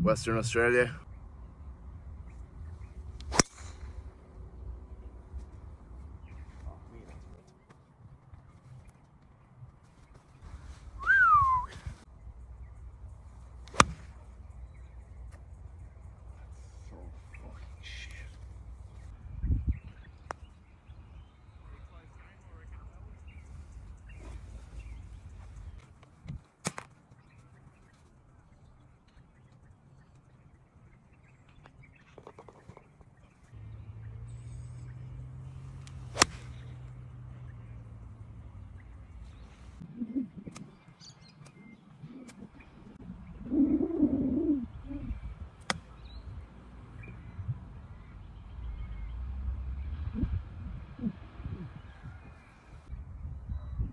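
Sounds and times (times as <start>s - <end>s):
birds chirping: 0.0s - 53.9s
golf club striking ball: 3.2s - 3.9s, 13.6s - 14.2s, 35.8s - 36.7s
wind buffeting microphone: 19.0s - 20.2s, 39.2s - 48.0s, 49.9s - 53.9s
bird cooing: 39.8s - 41.0s, 41.6s - 45.3s, 50.1s - 51.7s.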